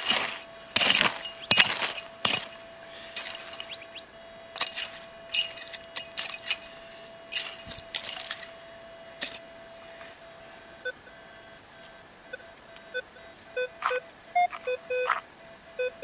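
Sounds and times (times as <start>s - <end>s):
pick striking gravelly dirt: 0.0s - 8.6s, 9.2s - 10.2s
metal detector short beeps: 12.9s - 15.2s.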